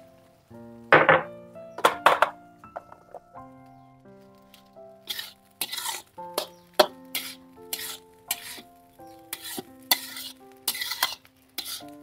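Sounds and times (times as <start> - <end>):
rice sizzling: 0.0 - 12.0
metal spatula scraping a wok: 5.0 - 8.7, 9.3 - 12.0.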